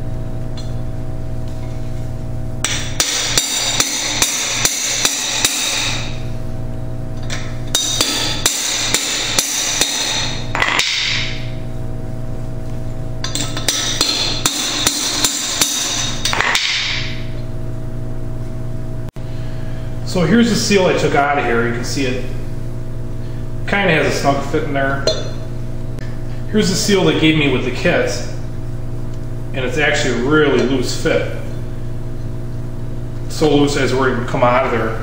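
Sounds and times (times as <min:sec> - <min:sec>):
steady low hum: 0:00.0 - 0:35.0
hammer striking metal: 0:02.6 - 0:06.2, 0:07.3 - 0:11.5, 0:13.2 - 0:17.2, 0:25.0 - 0:25.5.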